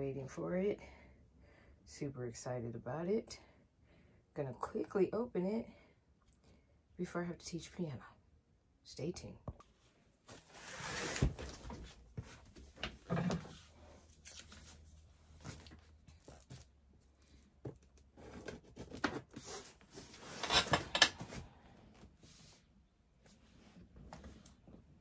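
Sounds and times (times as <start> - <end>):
cardboard box scraping and tearing: 10.4 - 11.7.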